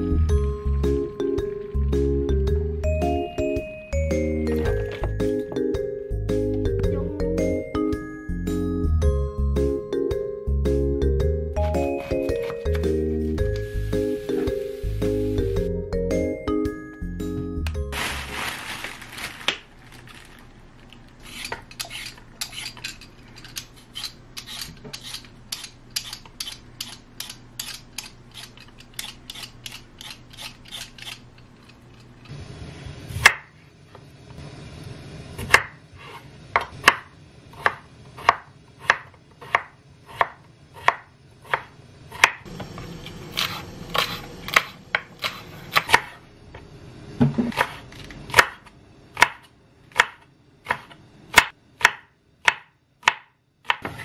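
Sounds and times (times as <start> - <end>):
knife chopping on wooden board: 36.6 - 42.4, 49.2 - 54.0.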